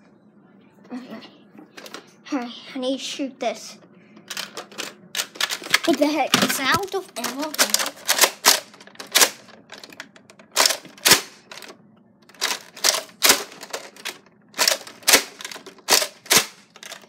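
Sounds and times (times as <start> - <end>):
toy blaster mechanism clacking: 4.3 - 6.0, 6.7 - 11.7, 12.3 - 17.0.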